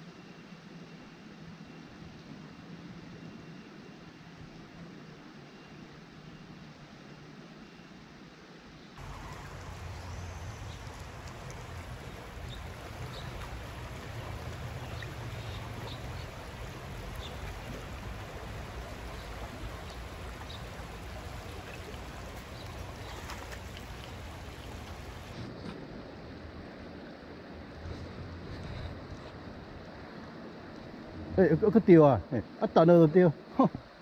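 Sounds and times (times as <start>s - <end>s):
creek water rushing over stones: 9.0s - 25.4s.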